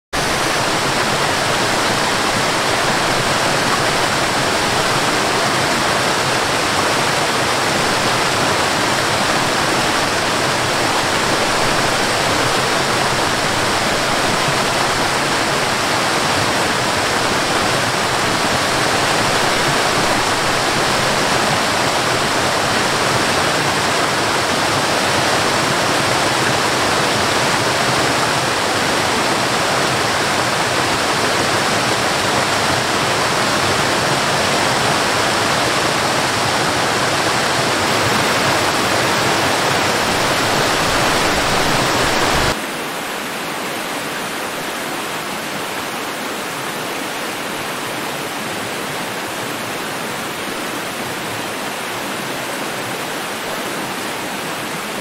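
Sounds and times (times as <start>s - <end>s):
waterfall rushing: 0.0s - 55.0s.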